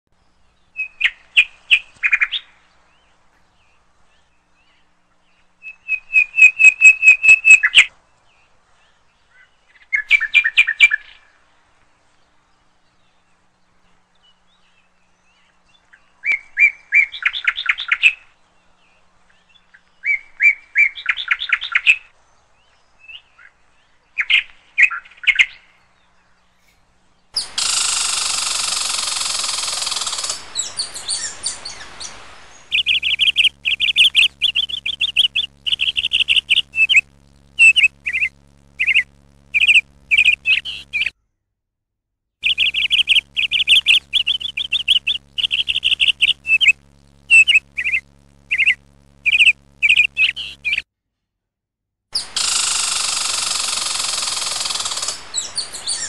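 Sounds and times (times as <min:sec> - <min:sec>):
squirrel chirping rapidly: 0:06.1 - 0:07.9, 0:27.4 - 0:41.1, 0:42.4 - 0:50.8, 0:52.2 - 0:56.0
steady loud noise: 0:27.4 - 0:41.1, 0:42.4 - 0:50.8.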